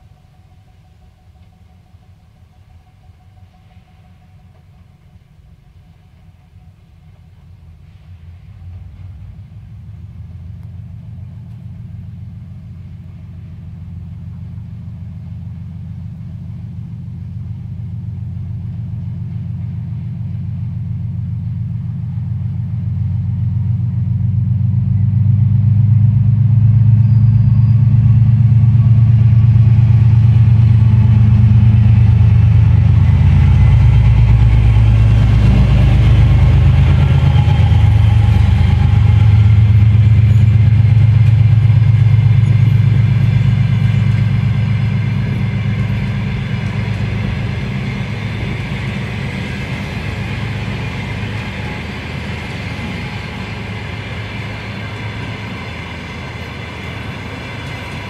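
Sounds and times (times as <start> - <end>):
diesel locomotive engine drone: 0.0 - 58.0
train wheels rolling on rails: 25.4 - 58.0.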